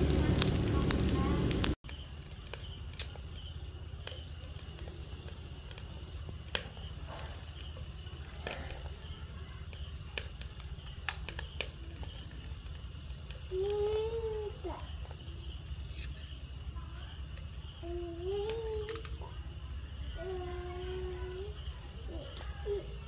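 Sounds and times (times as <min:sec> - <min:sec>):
low hum: 0:00.0 - 0:01.8
crickets chirring: 0:00.0 - 0:23.0.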